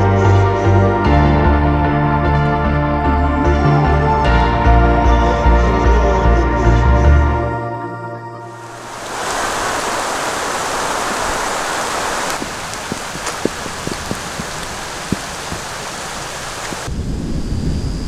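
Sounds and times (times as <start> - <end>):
rain hissing: 8.6 - 17.8
drops ticking: 12.2 - 16.9.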